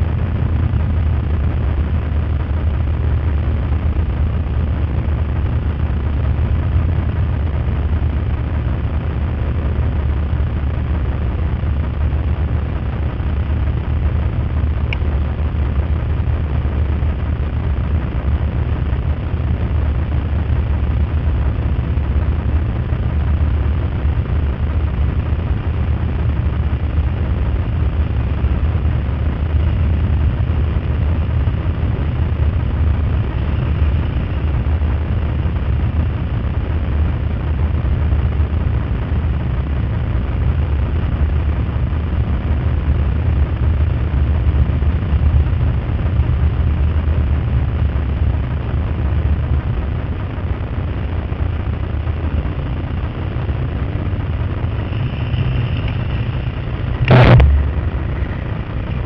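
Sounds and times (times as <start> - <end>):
motorcycle engines rumbling: 0.0 - 38.6, 51.2 - 59.0.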